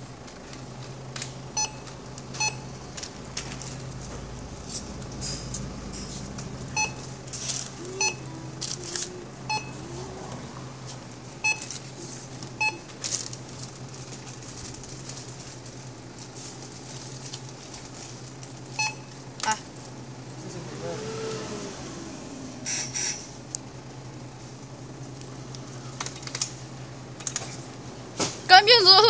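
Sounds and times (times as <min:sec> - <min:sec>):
steady low hum: 0:00.0 - 0:28.9
barcode scanner beeping: 0:01.6 - 0:02.8, 0:06.7 - 0:07.1, 0:08.0 - 0:08.3, 0:09.5 - 0:09.8, 0:11.4 - 0:11.7.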